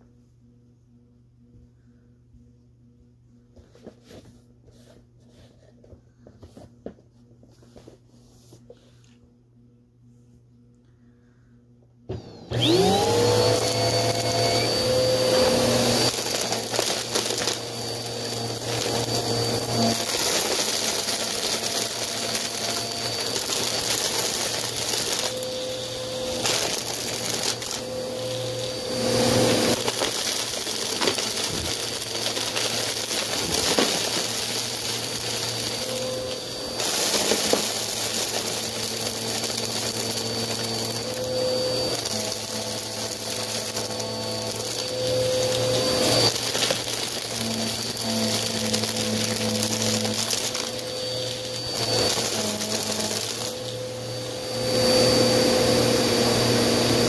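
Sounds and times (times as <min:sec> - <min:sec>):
vacuum cleaner motor whining: 0:12.1 - 0:57.0
grit crackling into vacuum: 0:13.5 - 0:53.7.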